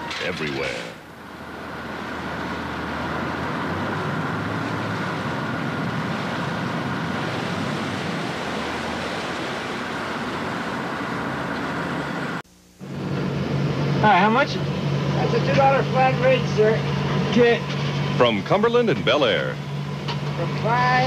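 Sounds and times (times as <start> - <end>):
ferry engine humming: 0.0 - 21.0
wind: 0.0 - 21.0
rushing water: 2.6 - 12.4.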